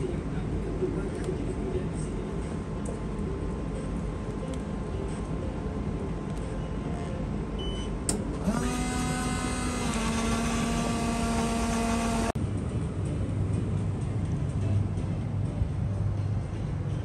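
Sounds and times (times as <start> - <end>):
dispenser motor hum: 8.0 - 12.4.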